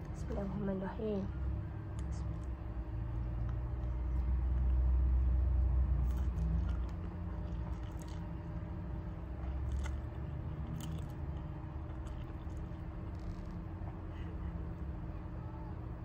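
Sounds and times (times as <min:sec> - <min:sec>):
person chewing and slurping noodles: 0:06.0 - 0:13.6.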